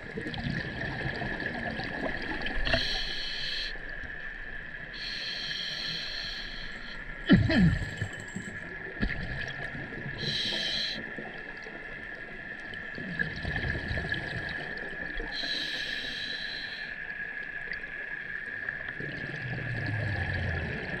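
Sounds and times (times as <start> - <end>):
regulator hissing inhalations: 2.7 - 3.8, 5.0 - 7.1, 10.2 - 11.1, 15.3 - 17.0
bubbling exhalations: 7.3 - 8.4.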